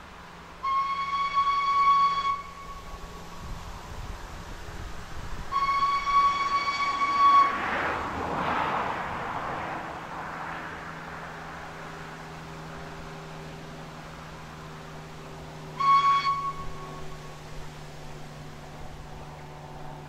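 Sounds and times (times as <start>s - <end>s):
low rumble of steam engine: 0.0s - 20.0s
rush of steam: 0.0s - 20.0s
steam whistle blast: 0.6s - 3.6s, 5.4s - 8.5s, 15.6s - 17.4s.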